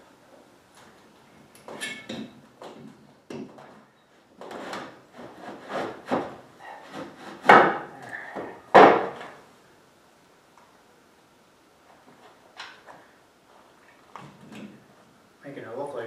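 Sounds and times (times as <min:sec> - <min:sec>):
loud knocks: 0:08.7 - 0:09.4.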